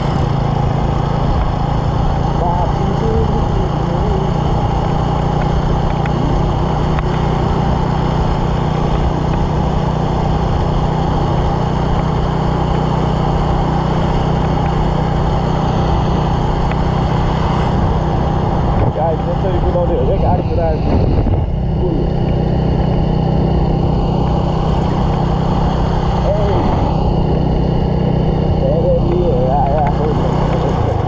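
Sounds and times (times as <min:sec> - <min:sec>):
motorcycle engine droning: 0:00.0 - 0:31.0
wind rushing over microphone: 0:13.5 - 0:31.0.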